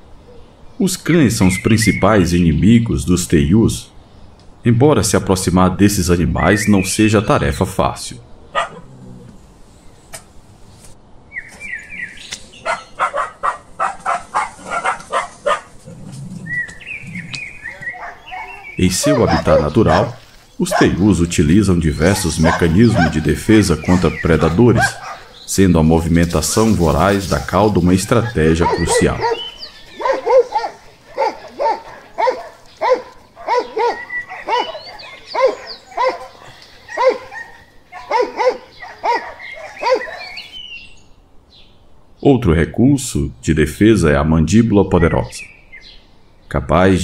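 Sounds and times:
birds chirping: 0.0s - 47.0s
dog barking: 8.5s - 8.9s, 12.6s - 15.8s, 17.7s - 21.2s, 22.0s - 25.4s, 27.3s - 40.5s.

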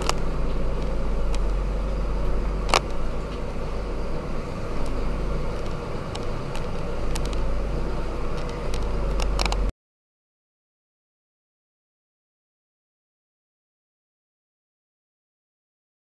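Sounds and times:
truck diesel engine droning: 0.0s - 9.7s.

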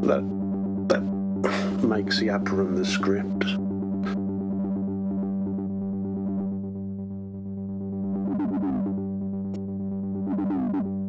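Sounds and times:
synth drone with resonant sweep: 3.6s - 11.0s.

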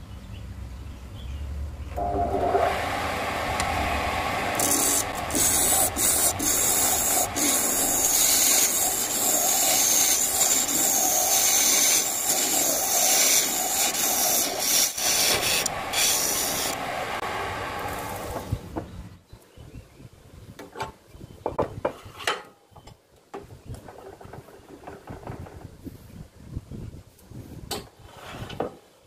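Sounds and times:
wood lathe running: 2.0s - 17.2s
chisel scraping wood shavings: 4.5s - 16.8s.

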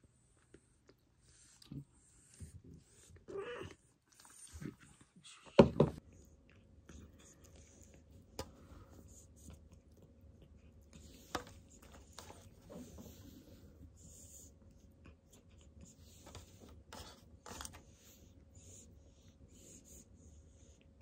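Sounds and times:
cat chewing meat: 6.0s - 16.2s.

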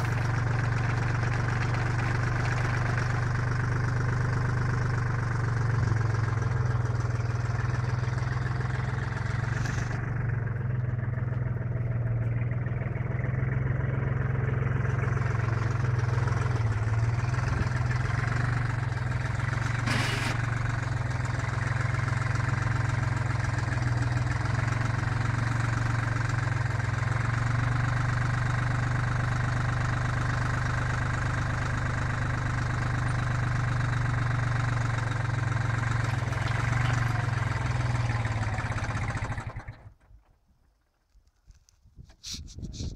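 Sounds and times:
auger boring into soil: 0.0s - 3.3s, 19.5s - 20.6s
tractor diesel engine running: 0.0s - 42.9s.

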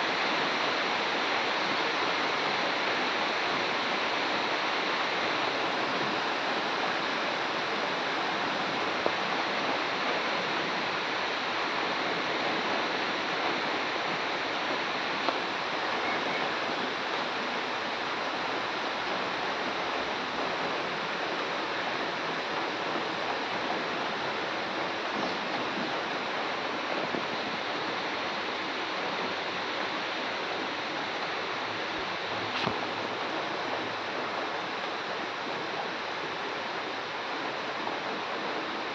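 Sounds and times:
steady rain: 0.0s - 38.9s.

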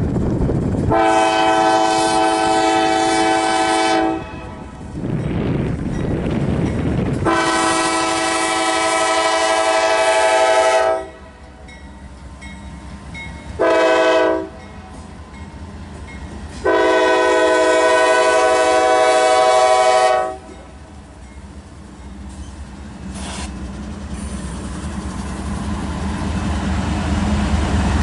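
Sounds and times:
locomotives rumbling past: 0.0s - 18.9s
locomotive air horn chord: 0.9s - 4.7s, 7.2s - 11.4s, 13.6s - 14.6s, 16.6s - 20.5s.

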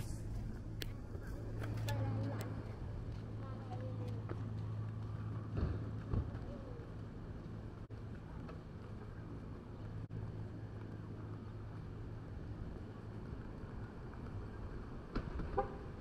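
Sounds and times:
vehicle engine hum: 0.0s - 16.0s.

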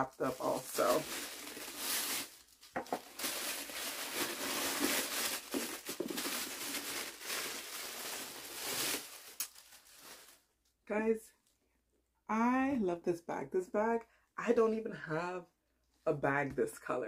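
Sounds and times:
packaging crinkling and rustling: 0.0s - 10.5s.

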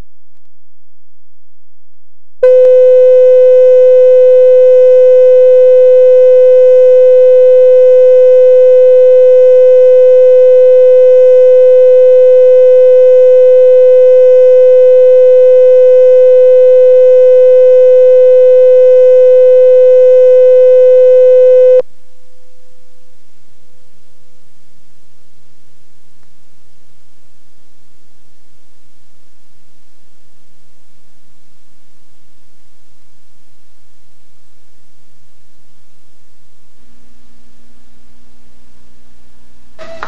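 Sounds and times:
steady reference tone: 2.4s - 21.8s.

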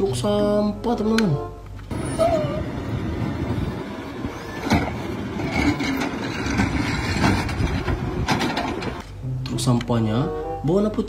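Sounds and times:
diesel engine running: 1.9s - 9.0s.

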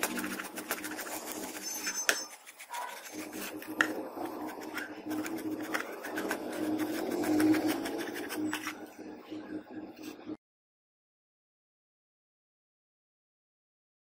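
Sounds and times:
chisel scraping wood: 0.0s - 8.9s.

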